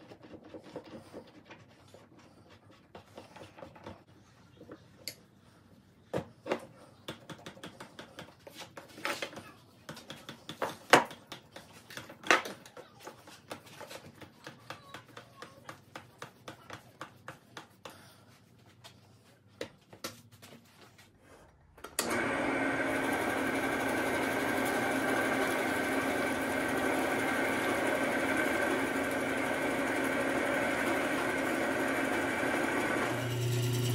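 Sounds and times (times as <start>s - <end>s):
drill press humming: 21.8s - 33.9s.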